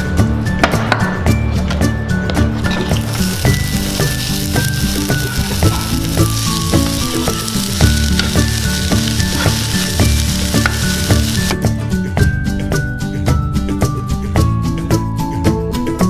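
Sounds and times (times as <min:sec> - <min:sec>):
background music: 0:00.0 - 0:16.0
vegetables sizzling on grill: 0:02.7 - 0:11.6.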